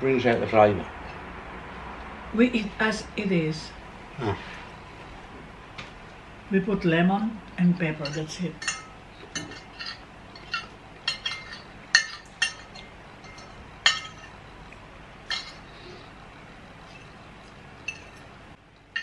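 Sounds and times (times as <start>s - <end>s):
cutlery clinking on plates: 8.0s - 14.4s, 15.3s - 15.7s, 17.8s - 18.3s.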